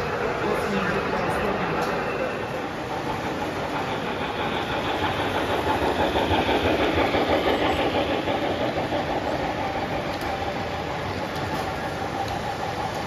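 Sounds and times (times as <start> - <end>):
model train wheels rumbling on rail: 0.0 - 13.0.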